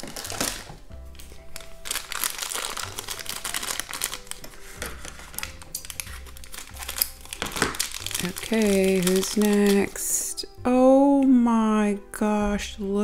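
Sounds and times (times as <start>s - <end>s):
scissors cutting plastic: 0.0s - 10.0s
plastic bag crinkling: 0.0s - 10.4s
soft background music: 0.0s - 13.0s.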